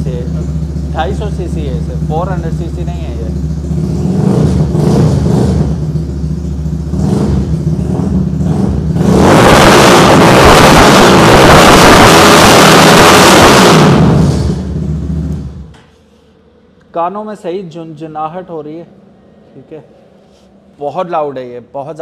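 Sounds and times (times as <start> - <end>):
motorcycle engine idling and revving: 0.0 - 15.8.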